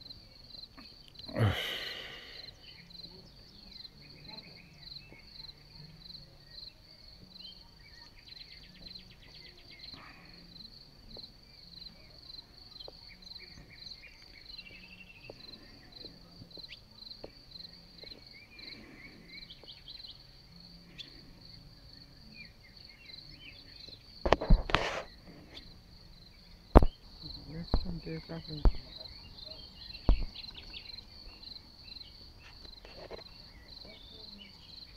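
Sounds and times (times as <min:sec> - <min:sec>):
crickets chirping: 0:00.0 - 0:34.9.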